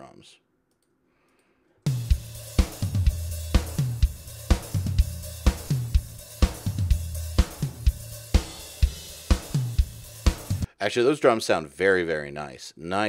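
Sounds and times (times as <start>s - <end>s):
rock drum kit playing a beat: 1.9s - 10.7s.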